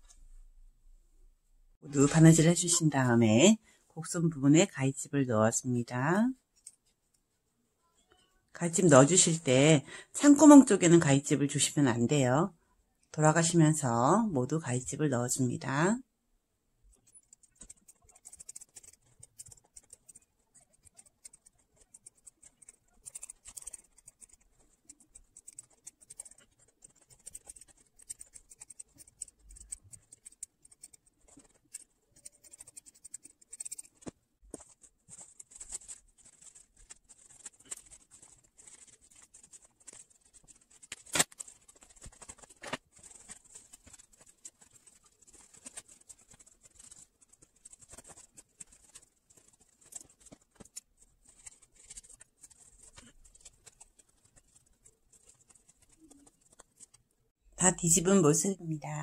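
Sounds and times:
fabric rustling: 33.6 - 57.1.

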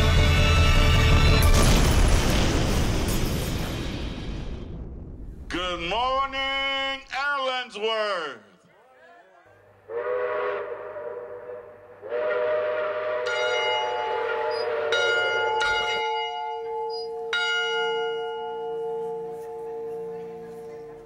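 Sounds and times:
locomotive air horn blasts: 9.7 - 15.9
tower bell ringing: 13.2 - 21.0.

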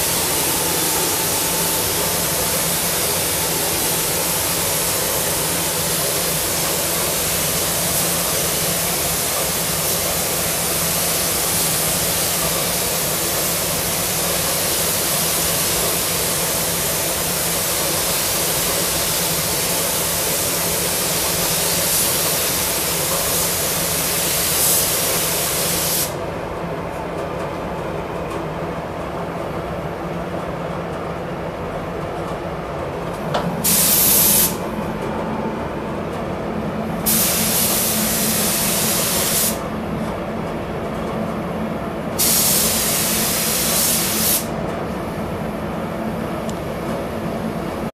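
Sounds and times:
paint spray gun hissing: 0.0 - 13.0, 17.6 - 26.2, 33.6 - 34.6, 37.1 - 39.6, 42.2 - 44.5
ventilation drone: 0.0 - 47.9.

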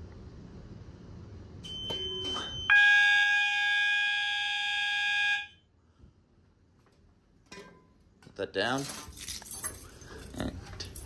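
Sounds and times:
alarm sounder continuous tone: 1.6 - 5.8.

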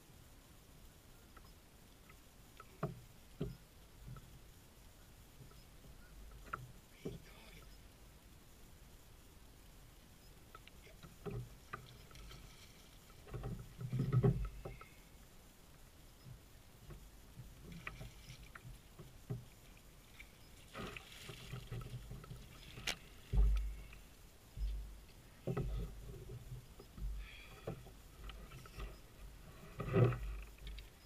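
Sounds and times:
light clicks and ticks: 1.3 - 4.3, 10.4 - 15.1, 29.8 - 31.0
dull low thumps: 23.2 - 28.0.

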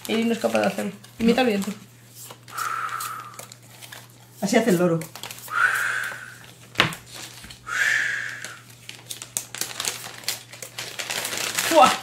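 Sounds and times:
plastic bags crinkling: 0.0 - 5.6, 6.2 - 7.7, 8.3 - 12.0
person blowing breathy whoosh: 2.5 - 3.4, 5.5 - 6.4, 7.7 - 8.5.

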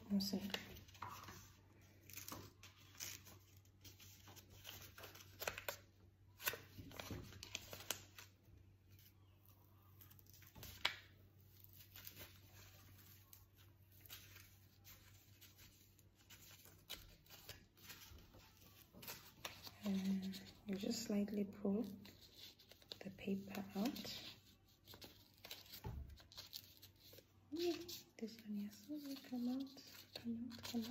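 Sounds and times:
paper rustling and tearing: 0.2 - 5.8, 21.8 - 30.9.

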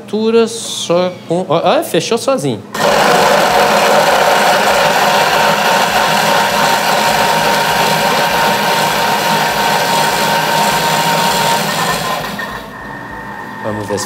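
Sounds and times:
food processor motor whirring: 2.8 - 12.8.

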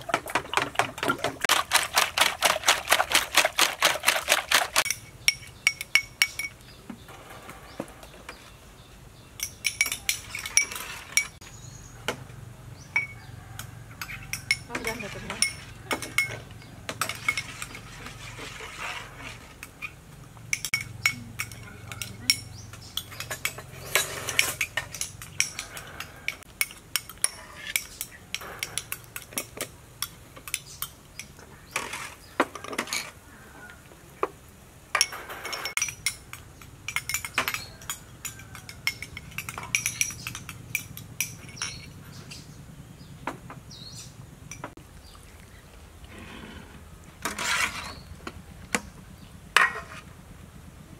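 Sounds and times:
metal ladle clinking on ceramic bowls: 9.4 - 11.4, 14.0 - 18.2, 20.5 - 33.1, 34.9 - 41.9.

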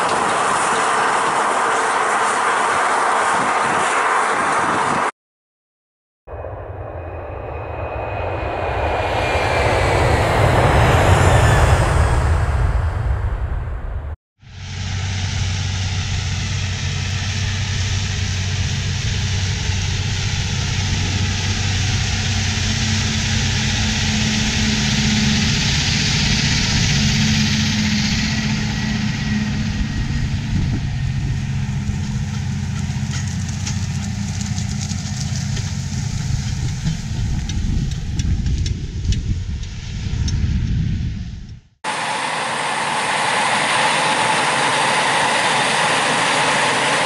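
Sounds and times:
tractor diesel engine under load: 0.0 - 3.8, 14.5 - 39.8, 41.9 - 47.0
constant rushing noise: 0.0 - 5.1.

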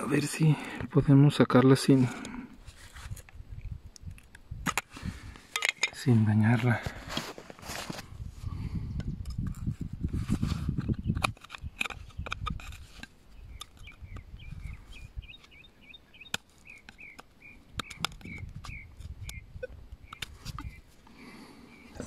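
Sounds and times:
knife scraping against rock: 9.3 - 14.0
bird chirping: 13.3 - 22.0.

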